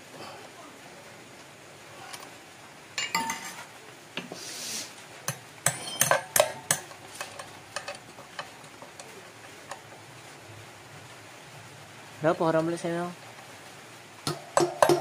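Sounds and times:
metal tools clinking: 3.0s - 3.7s, 5.7s - 9.2s.

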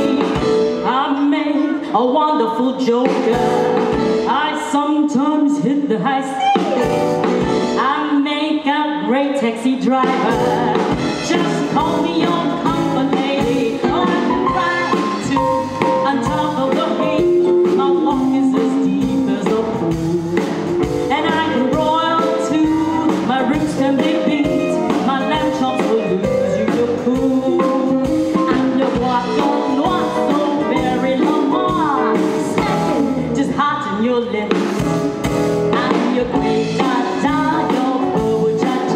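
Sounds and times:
instrumental backing music: 0.0s - 38.9s
woman singing into microphone: 0.0s - 38.9s.

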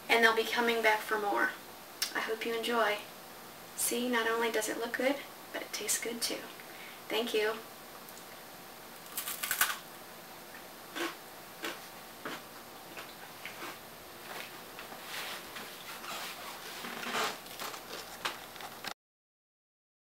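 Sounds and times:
crunch of biting a cracker: 9.0s - 9.8s.

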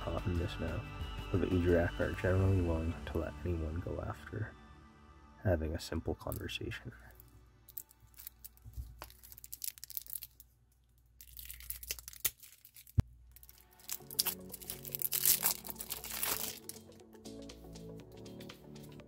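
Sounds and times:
plastic shrink-wrap crinkling: 7.1s - 16.9s.

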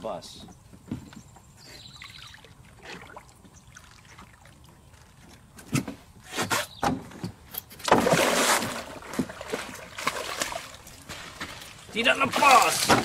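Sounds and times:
fish splashing in water: 7.9s - 11.8s.

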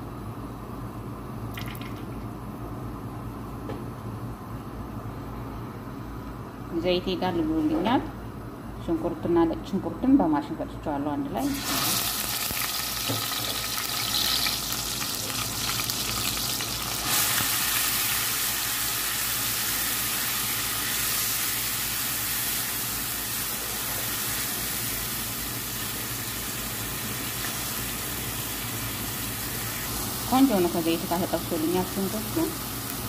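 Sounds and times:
paste sizzling in hot oil: 11.4s - 33.0s.

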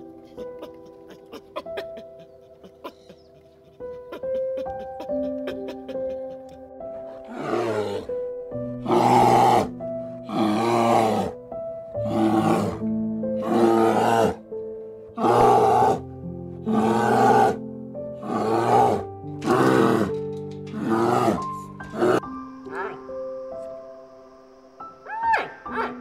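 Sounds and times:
gentle background music: 0.0s - 26.0s
bear roaring: 7.0s - 8.2s, 8.8s - 11.4s, 12.0s - 14.4s, 15.2s - 17.6s, 18.2s - 23.0s.

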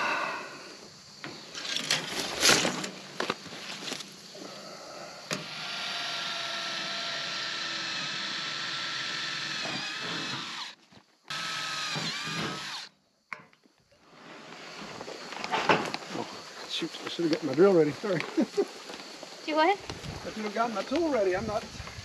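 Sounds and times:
cordless drill boring into metal: 5.4s - 12.9s.

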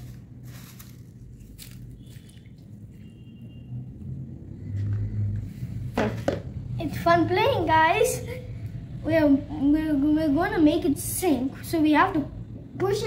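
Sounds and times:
paper scraps rustling: 0.0s - 2.4s.

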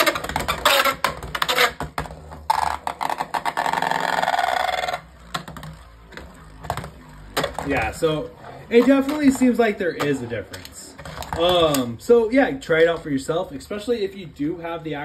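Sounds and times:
spinning top grinding buzz: 0.0s - 14.1s
spinning top whirring: 0.0s - 14.1s
spinning top clicking: 2.5s - 11.9s.

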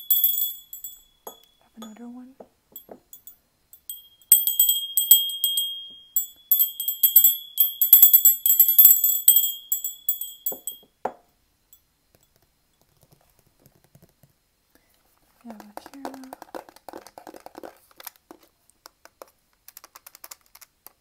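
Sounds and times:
glass hand bells ringing: 0.0s - 2.2s, 2.8s - 11.0s.

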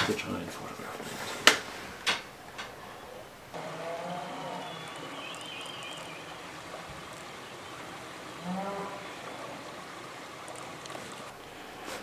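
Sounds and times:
steady rushing background noise: 0.0s - 12.0s
warbling bird call: 2.3s - 11.9s.

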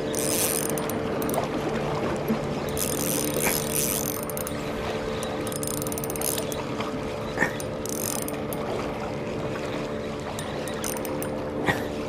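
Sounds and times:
fishing reel gear whirring: 0.0s - 1.5s, 2.6s - 6.8s, 7.4s - 8.8s, 10.2s - 11.5s.

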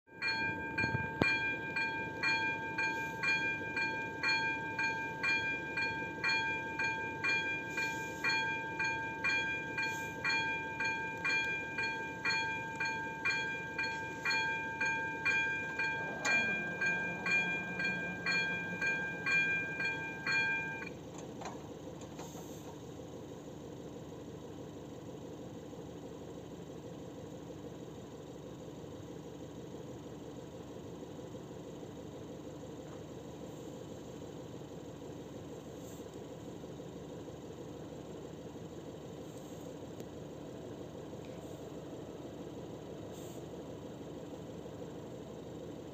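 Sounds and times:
barrier motor hum: 0.1s - 20.9s
level crossing warning bell: 0.1s - 21.0s.

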